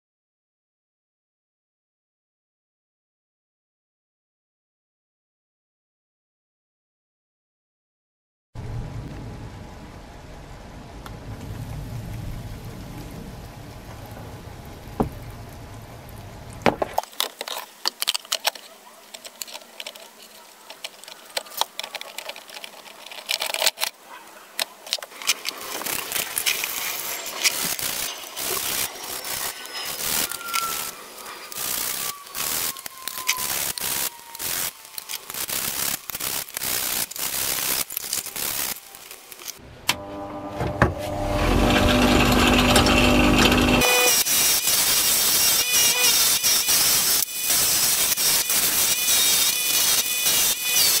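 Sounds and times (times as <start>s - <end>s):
bubbles fizzing: 11.1s - 17.9s
running water splashing: 11.4s - 23.4s
metal parts clinking and scraping: 17.0s - 24.0s, 24.6s - 39.6s.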